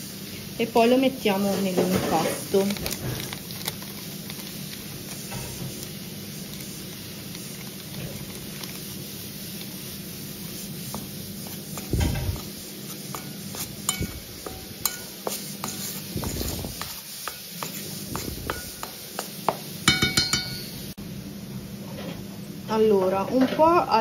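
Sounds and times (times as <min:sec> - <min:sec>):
metal spoon scraping steel bowl: 0:13.1 - 0:19.3
ringing clinks: 0:19.9 - 0:20.8.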